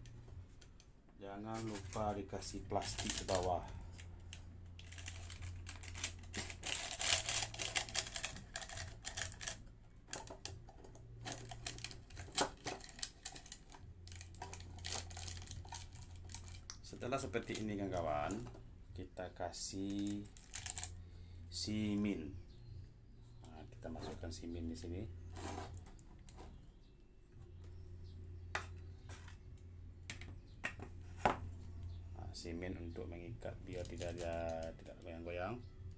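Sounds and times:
low steady hum: 0.0s - 35.9s
plastic bag crinkling: 1.5s - 18.5s, 19.8s - 21.0s, 33.6s - 34.9s.

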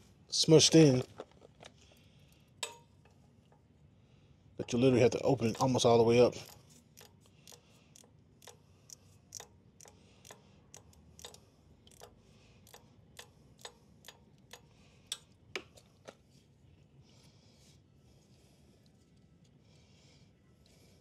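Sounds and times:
hand tool clicking: 6.4s - 15.8s.

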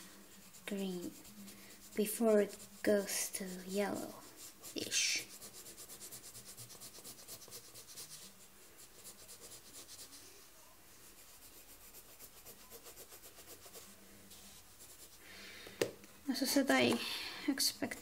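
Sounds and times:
pencil shading on paper: 0.0s - 10.2s, 11.1s - 15.2s.

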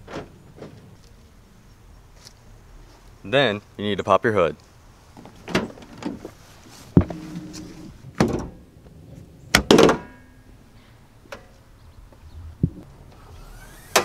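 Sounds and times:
hood release clunks and knocks: 5.2s - 6.3s.

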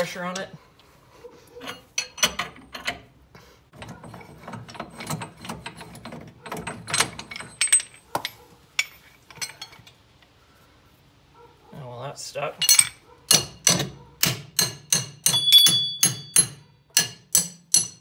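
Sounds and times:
metal knocks: 12.7s - 18.0s.

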